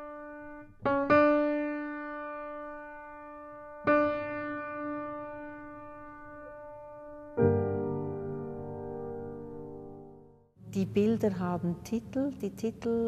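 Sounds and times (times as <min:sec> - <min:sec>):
slow piano-like keyboard notes: 0:00.0 - 0:10.8.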